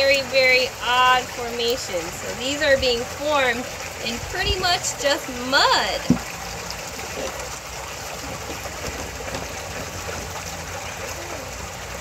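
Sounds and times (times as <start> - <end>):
running water: 0.0 - 12.0.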